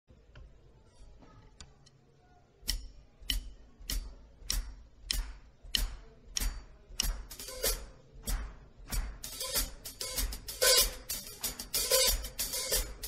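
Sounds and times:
bass drum beats: 0:02.7 - 0:13.0
cymbal strikes: 0:05.8 - 0:13.0.

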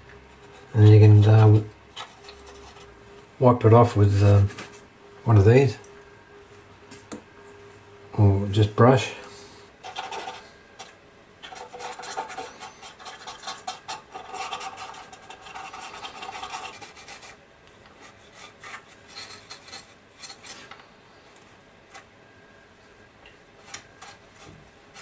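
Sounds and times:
brush scrubbing plastic: 0:09.8 - 0:20.8, 0:23.6 - 0:25.0.

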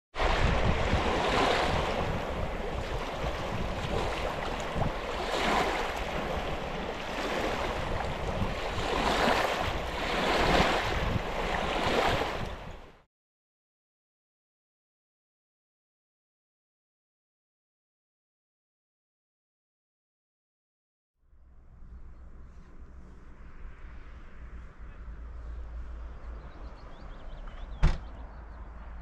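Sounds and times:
rushing water: 0:00.2 - 0:13.0
wind buffeting microphone: 0:00.2 - 0:13.0.

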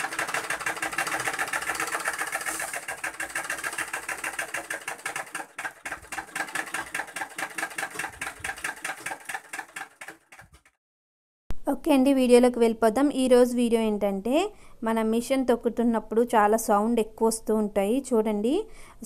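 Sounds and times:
treadle sewing machine clattering: 0:00.0 - 0:10.8.

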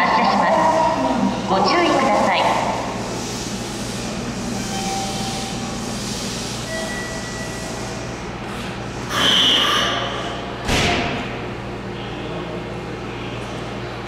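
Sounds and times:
electric train humming: 0:00.0 - 0:10.6.

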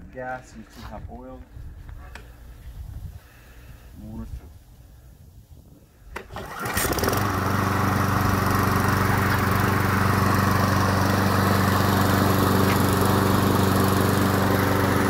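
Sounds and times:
lawn mower engine running: 0:06.2 - 0:15.0.

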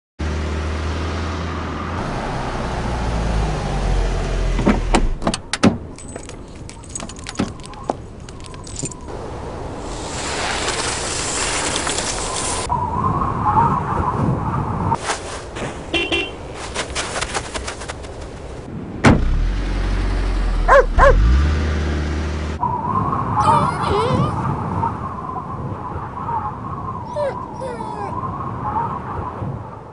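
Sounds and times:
car engine and road hum: 0:00.2 - 0:12.7, 0:15.4 - 0:25.1
sharp clicks and clinks: 0:05.9 - 0:09.1
snow crunching: 0:09.6 - 0:12.7, 0:15.0 - 0:18.7
dog barking: 0:20.7 - 0:21.3.

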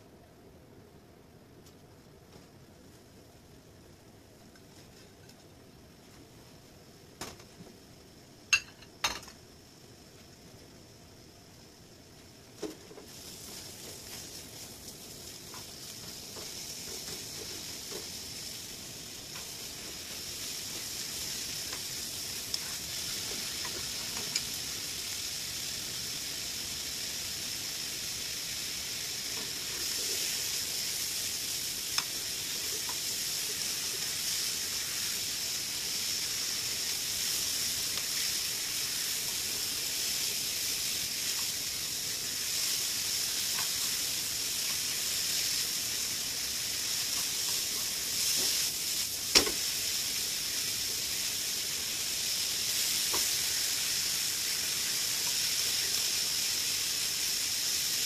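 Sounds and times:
meat sizzling in a frying pan: 0:06.0 - 0:58.0
utensils clicking on a pan: 0:21.6 - 0:24.6, 0:31.9 - 0:33.2, 0:42.5 - 0:45.6, 0:46.8 - 0:49.7, 0:52.8 - 0:53.6.

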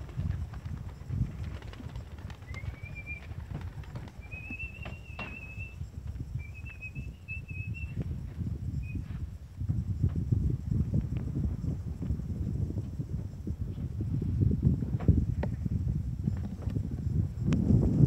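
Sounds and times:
long whistled notes: 0:02.3 - 0:08.1.

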